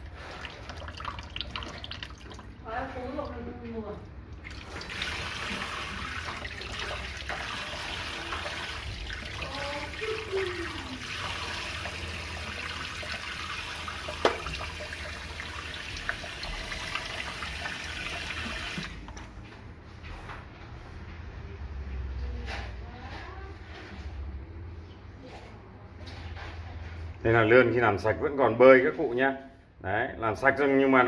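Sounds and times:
tap water running into metal sink: 4.4 - 19.1.

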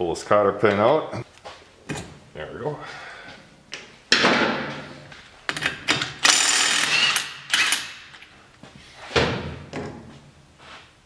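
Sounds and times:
impact wrench bursts: 5.5 - 8.2.

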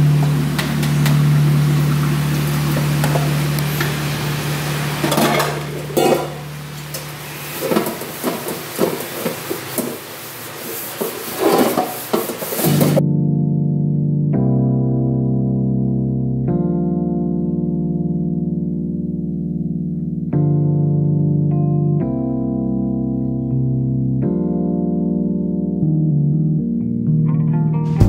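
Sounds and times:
steady hiss and low hum: 0.0 - 13.0
background music: 12.7 - 28.0.

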